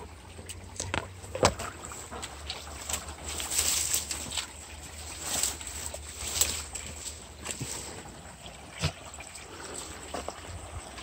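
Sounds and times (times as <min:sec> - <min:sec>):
brook trickling: 0:00.0 - 0:11.0
footsteps in dry leaves: 0:01.7 - 0:08.2.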